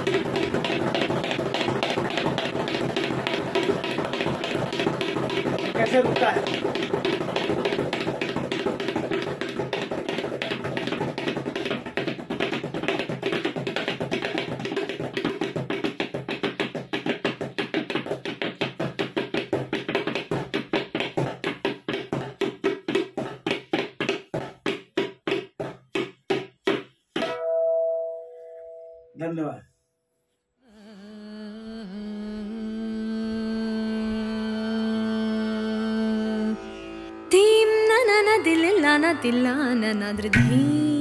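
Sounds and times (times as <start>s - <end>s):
tabla drumming: 0.0s - 28.1s, 40.2s - 41.0s.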